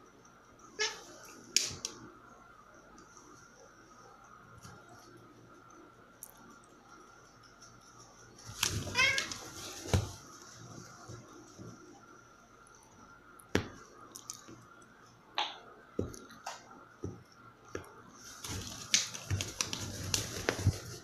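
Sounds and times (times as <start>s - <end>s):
cats play-fighting on bedding: 7.0s - 12.1s, 17.0s - 21.0s.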